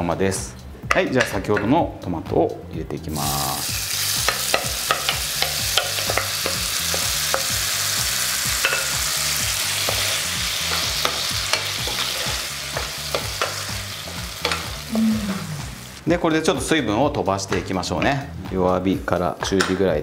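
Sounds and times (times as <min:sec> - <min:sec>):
tomatoes sizzling in a frying pan: 0:03.1 - 0:16.0.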